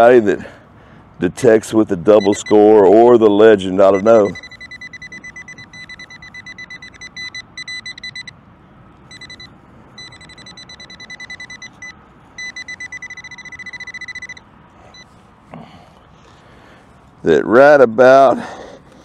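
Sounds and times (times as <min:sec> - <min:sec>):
metal detector pinpointer beeping: 0:02.1 - 0:08.4, 0:09.1 - 0:15.1.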